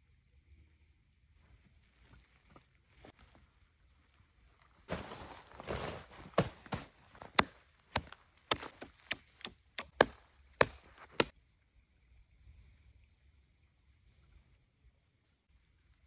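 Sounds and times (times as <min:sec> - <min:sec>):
tent canvas rustling: 0:04.6 - 0:08.8
hatchet chopping ice: 0:07.2 - 0:11.3.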